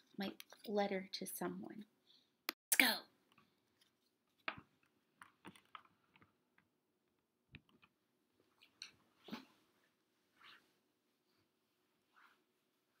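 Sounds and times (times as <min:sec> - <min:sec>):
soft rustles: 0:08.4 - 0:13.0.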